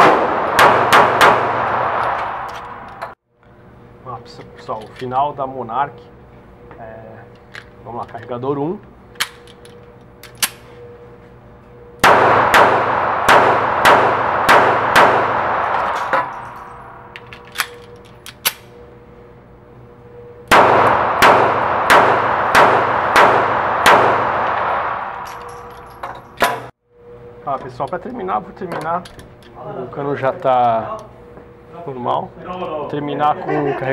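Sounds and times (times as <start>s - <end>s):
pistol shots echoing indoors: 0.0s - 2.9s, 12.0s - 17.8s, 20.5s - 26.7s.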